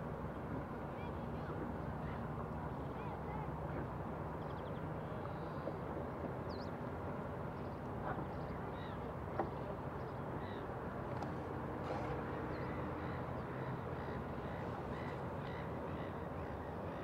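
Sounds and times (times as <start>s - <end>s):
steady water rush: 0.0s - 17.0s
faint bird calls: 8.1s - 17.0s.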